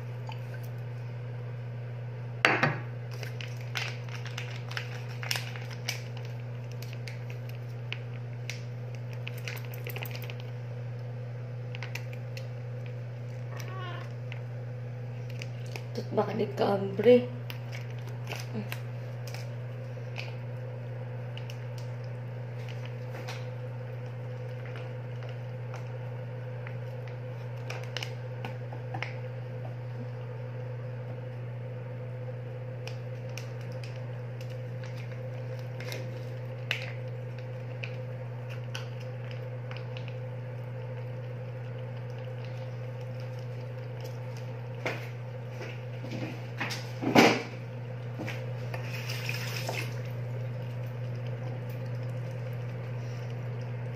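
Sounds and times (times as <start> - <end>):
steady low hum: 0.0 - 53.9
cat chewing and licking: 33.4 - 44.8, 50.2 - 53.9.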